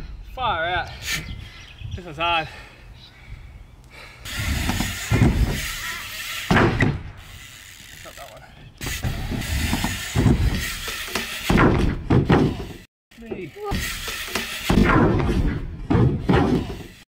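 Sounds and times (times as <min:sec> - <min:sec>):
bike tyres rumbling on wood: 0:04.3 - 0:12.9, 0:13.6 - 0:17.0
bike knocks and clatter: 0:04.5 - 0:07.2, 0:08.7 - 0:17.0.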